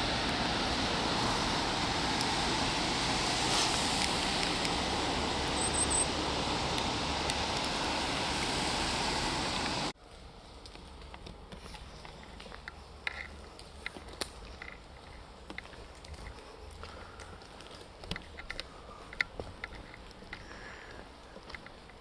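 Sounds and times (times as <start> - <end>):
distant road traffic: 0.0 - 22.0
high chirps: 5.5 - 6.2
faint ticks and crackles: 10.0 - 22.0.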